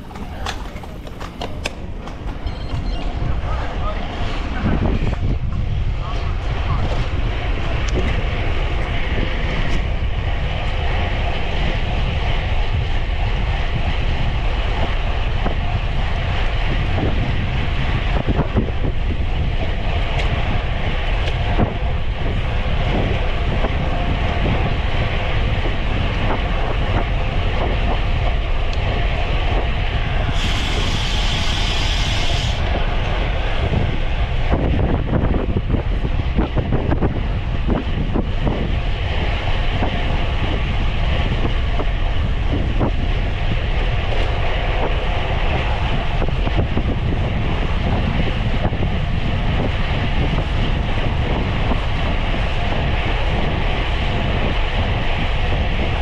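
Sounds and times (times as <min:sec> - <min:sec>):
bicycle road and drivetrain noise: 0:00.0 - 0:56.0
wind rushing over microphone: 0:00.0 - 0:56.0.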